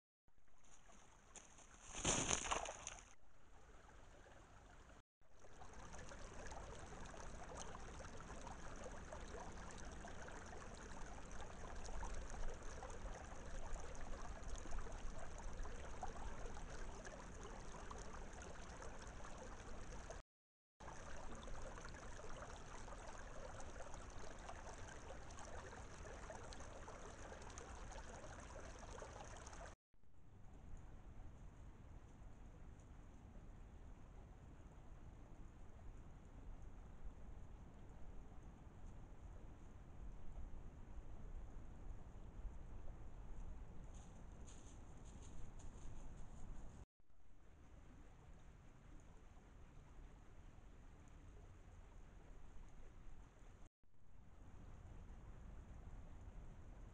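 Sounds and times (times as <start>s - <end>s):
short rustle: 0.6s - 3.1s.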